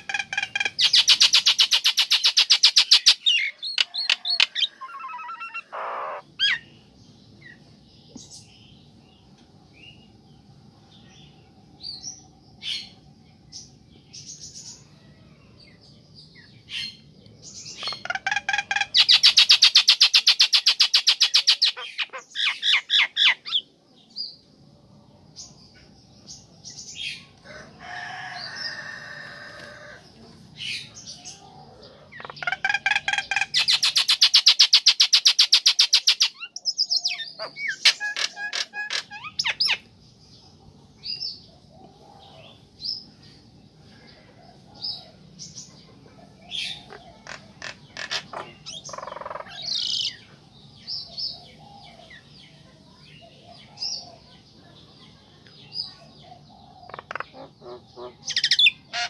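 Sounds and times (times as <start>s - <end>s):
myna calling: 0.0s - 6.7s, 17.8s - 23.6s, 30.6s - 39.9s, 46.2s - 50.2s, 56.7s - 59.0s.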